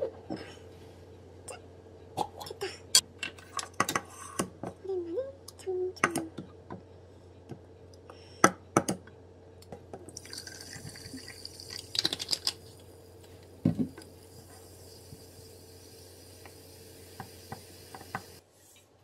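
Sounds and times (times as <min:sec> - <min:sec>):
carbonated water fizzing: 0:10.1 - 0:12.9, 0:14.0 - 0:18.4
thump: 0:13.6 - 0:13.9.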